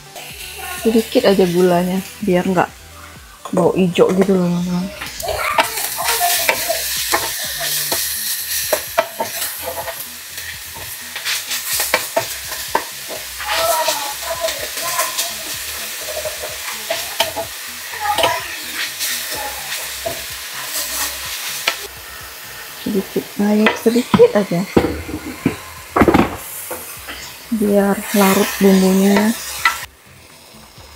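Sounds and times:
food sizzling in a hot pan: 0:00.0 - 0:30.9
utensil scraping and knocking pan: 0:23.7 - 0:26.4.

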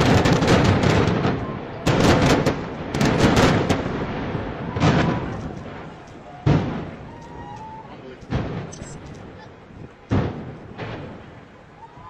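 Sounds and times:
demolition explosions echoing: 0:00.0 - 0:12.0.

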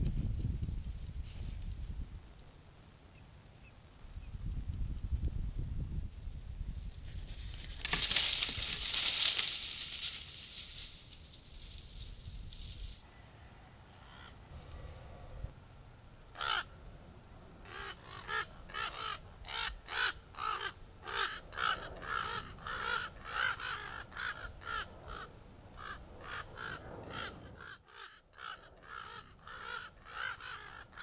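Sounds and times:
ravens calling: 0:07.7 - 0:12.1, 0:13.9 - 0:15.6, 0:16.2 - 0:16.8, 0:17.4 - 0:31.0.

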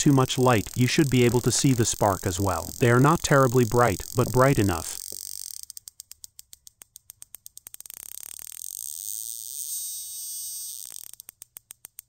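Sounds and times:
faint steady whine: 0:00.0 - 0:05.2
spark plug snapping: 0:00.0 - 0:05.3.

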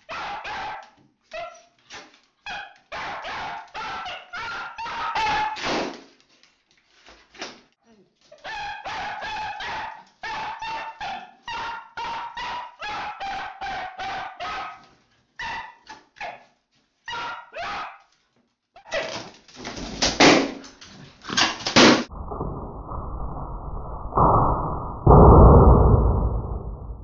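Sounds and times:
dog barking sharply: 0:00.0 - 0:01.5, 0:02.5 - 0:05.7, 0:08.4 - 0:16.4, 0:17.1 - 0:18.1.

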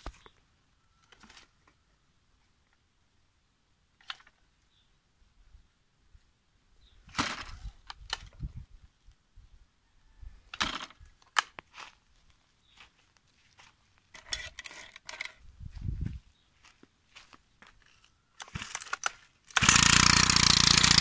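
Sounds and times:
footsteps on gravel: 0:11.6 - 0:14.2, 0:15.7 - 0:18.1
hands handling machine parts: 0:12.7 - 0:15.5, 0:16.6 - 0:19.6.

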